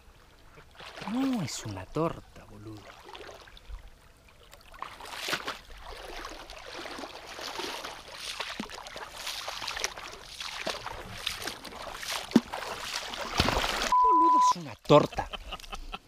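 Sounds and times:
water splashing from thrashing fish: 0.7 - 1.5, 2.7 - 3.6, 4.4 - 14.0.

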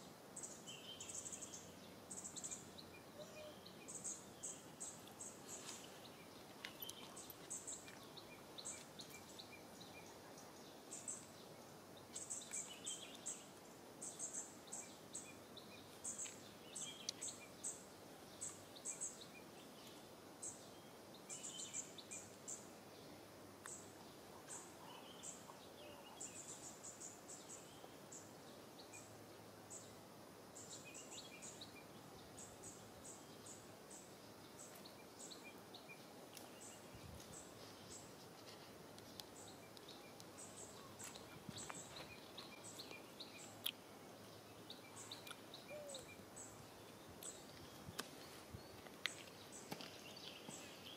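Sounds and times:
low hiss: 0.0 - 50.9.

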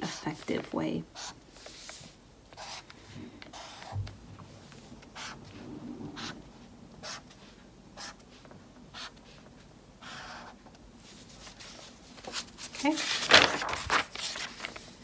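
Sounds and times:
marker scratching on paper: 1.1 - 2.9, 3.5 - 4.0, 5.2 - 5.4, 6.1 - 6.4, 7.0 - 7.4, 8.0 - 8.3, 8.9 - 9.2, 10.0 - 10.6.

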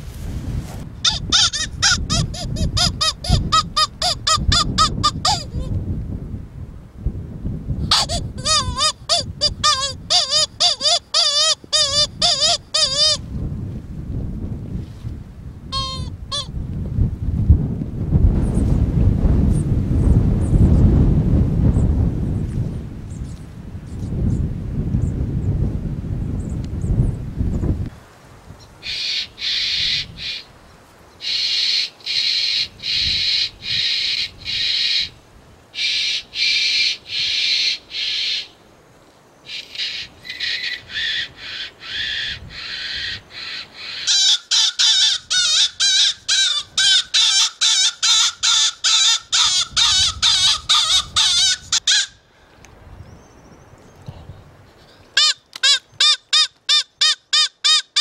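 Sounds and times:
predator call squawks and squeals: 1.0 - 5.7, 7.9 - 13.2, 15.8 - 16.5, 28.8 - 30.5, 31.2 - 35.1, 35.8 - 38.5, 39.5 - 52.2, 55.2 - 58.0.

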